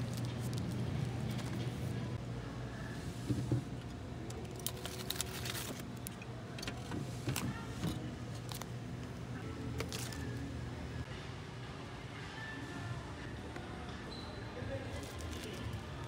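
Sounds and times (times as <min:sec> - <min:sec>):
plastic packets crinkling: 0:04.4 - 0:06.1, 0:09.8 - 0:10.4, 0:14.9 - 0:15.8.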